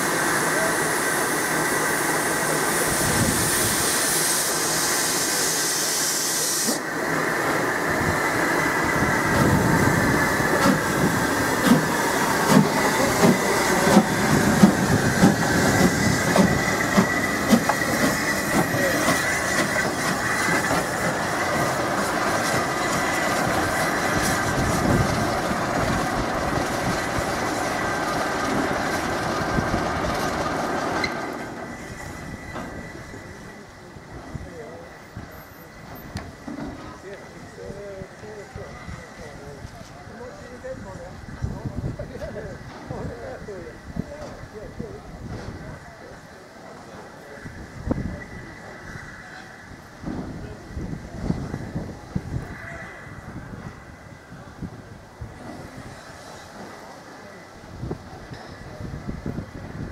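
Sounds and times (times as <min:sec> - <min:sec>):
loud steam hiss: 0:00.0 - 0:59.9
steam locomotive rumbling: 0:00.0 - 0:59.9.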